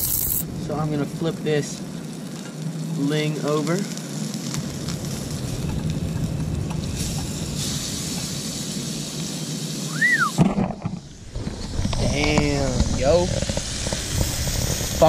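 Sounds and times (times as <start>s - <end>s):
low rumble: 4.4s - 8.8s
whistled note: 9.9s - 10.4s
fish sizzling in butter: 13.4s - 15.0s.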